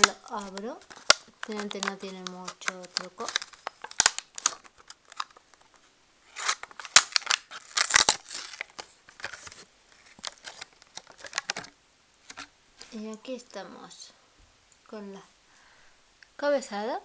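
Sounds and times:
paper wrapping rustling and crinkling: 0.0s - 11.7s.

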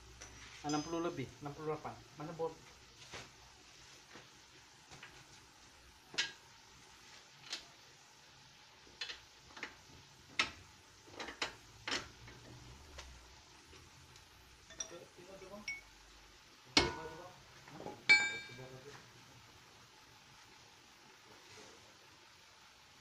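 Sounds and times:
metal tools clicking and tapping: 0.2s - 1.2s, 14.6s - 15.9s, 18.1s - 18.7s.

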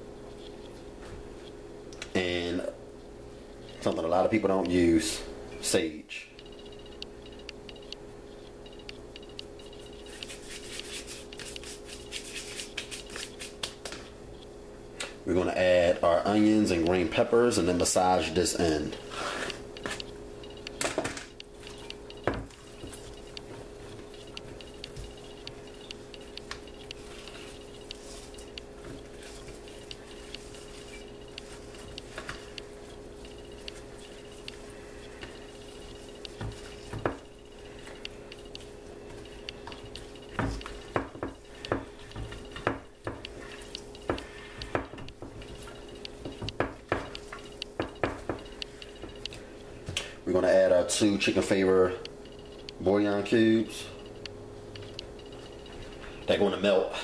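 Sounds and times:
faint steady hum: 0.0s - 57.0s
hands working raw meat: 9.6s - 13.9s, 21.6s - 49.5s.

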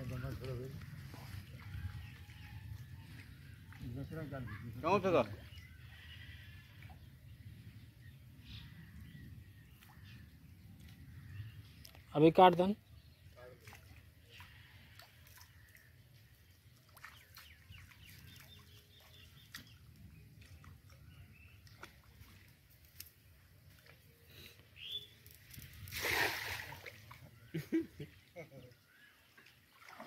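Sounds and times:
faint bird calls: 5.3s - 7.1s
water splash: 25.8s - 27.2s, 29.7s - 30.0s.

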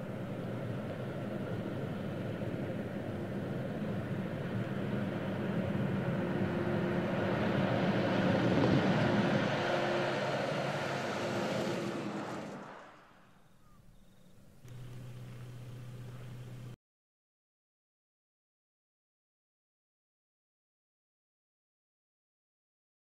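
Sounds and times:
diesel truck engine under load: 0.0s - 16.8s
tyres on gravel road: 0.0s - 16.8s.

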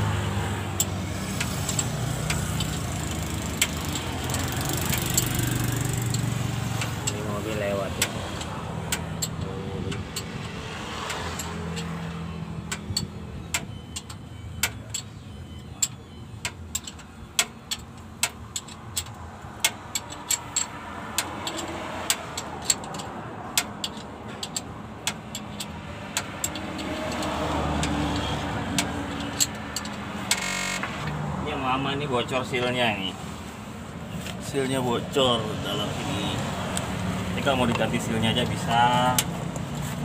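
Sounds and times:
road traffic hum: 0.0s - 40.0s
metallic clicks of hand tools: 0.7s - 15.1s, 15.8s - 31.2s.

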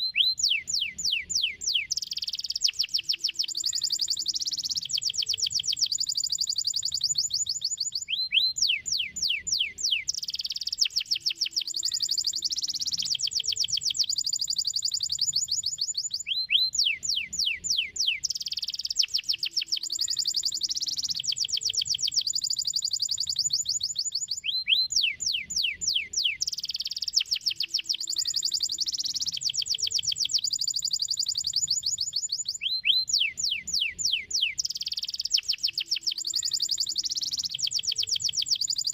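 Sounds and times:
canary singing trills: 0.0s - 38.9s.

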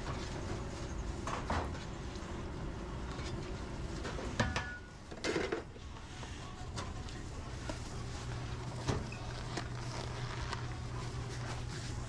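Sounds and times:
kitchen hum: 0.0s - 12.0s
dishware clattering: 4.4s - 5.6s.

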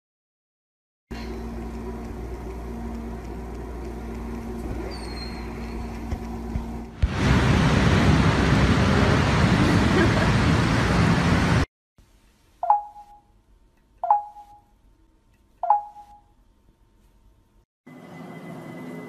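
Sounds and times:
steady low hum: 1.1s - 17.6s
faint high chirp: 4.9s - 5.8s, 12.6s - 13.4s, 14.0s - 14.7s, 15.6s - 16.4s.

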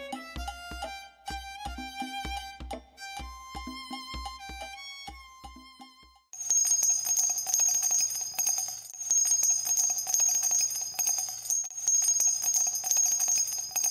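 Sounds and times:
violin music: 0.0s - 6.3s
rapid jingling bell: 6.4s - 13.9s.

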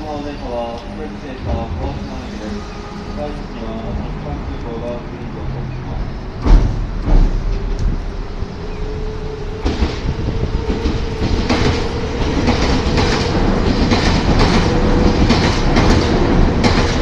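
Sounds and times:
train humming and rumbling: 0.0s - 17.0s
wheels clacking over rail joints: 9.6s - 17.0s.

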